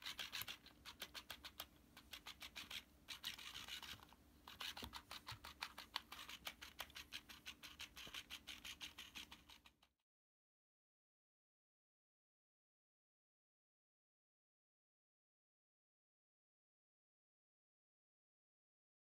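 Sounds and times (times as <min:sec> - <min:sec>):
toy fish tail ticking on fabric: 0:00.0 - 0:09.9.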